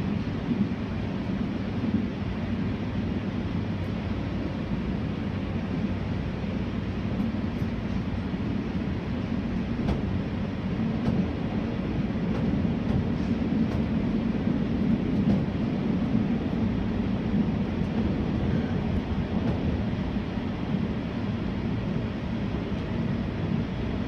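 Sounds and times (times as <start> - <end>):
train running drone: 0.0 - 24.0.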